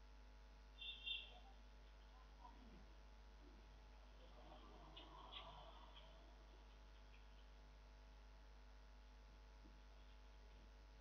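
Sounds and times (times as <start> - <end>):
faint high chirp: 0.8 - 1.6.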